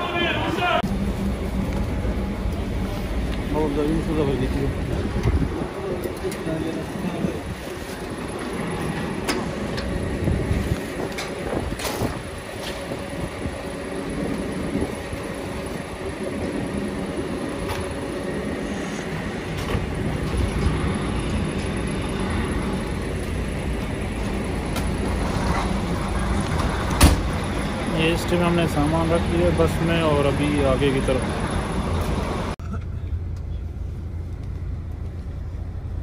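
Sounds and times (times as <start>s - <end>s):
diesel engine idling: 0.0s - 36.0s.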